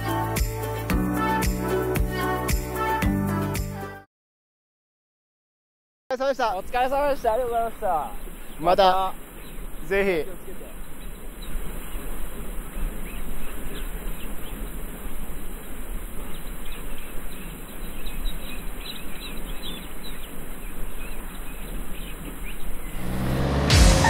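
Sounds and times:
small birds chirping: 6.1s - 23.1s.

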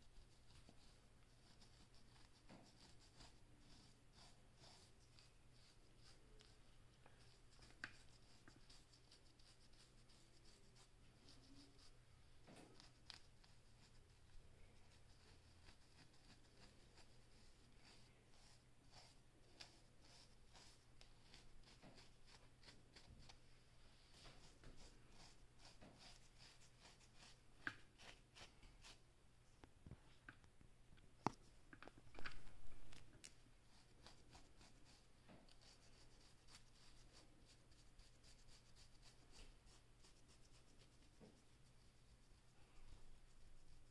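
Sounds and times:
comb scratching through hair: 0.0s - 29.0s, 32.2s - 42.4s
comb scraping through hair: 24.1s - 29.0s.

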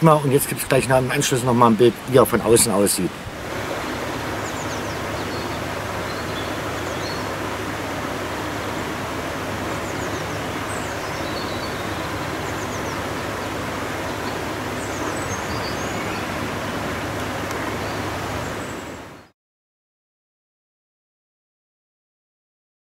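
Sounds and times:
stream water rushing: 0.0s - 19.3s
small birds chirping: 1.2s - 19.3s.

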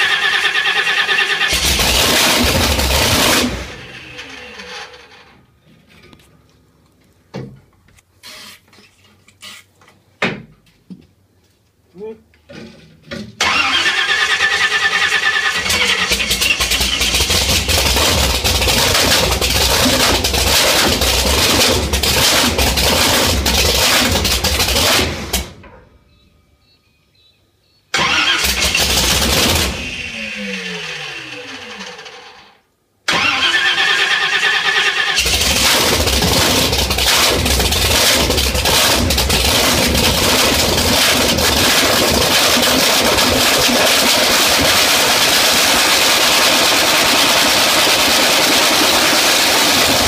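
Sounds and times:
engine spinning down: 28.0s - 32.6s, 35.2s - 50.0s.

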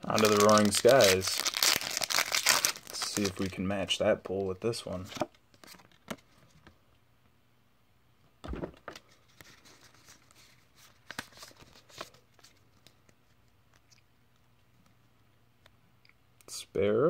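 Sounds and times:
cards and foil wrapper rustling: 0.0s - 6.0s, 9.0s - 13.2s.

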